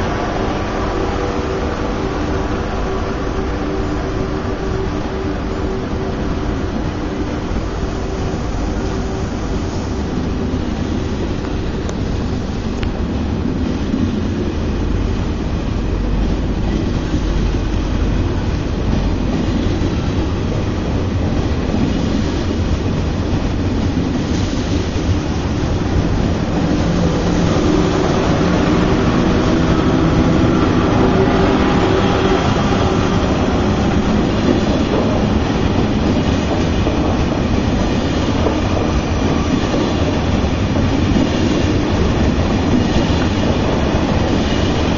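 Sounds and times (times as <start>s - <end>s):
train wheels rumbling on rails: 0.0s - 44.9s.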